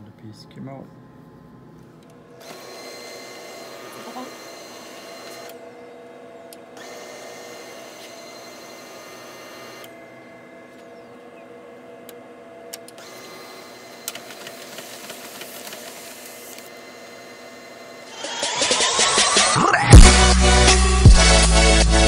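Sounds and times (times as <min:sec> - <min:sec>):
laser printer humming: 0:00.0 - 0:19.8
printer clicks and rattles: 0:14.0 - 0:16.6.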